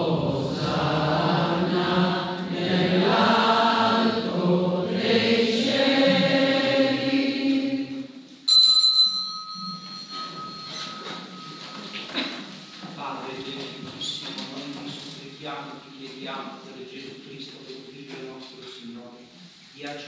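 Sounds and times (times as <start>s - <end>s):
voices singing a slow chant: 0.0s - 8.3s
small altar bell ringing: 8.5s - 12.6s.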